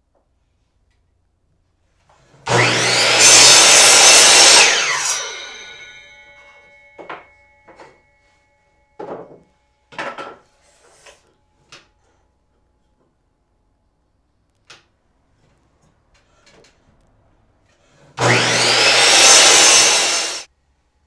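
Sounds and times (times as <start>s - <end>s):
miter saw cutting wood: 2.5s - 6.2s, 18.2s - 20.5s.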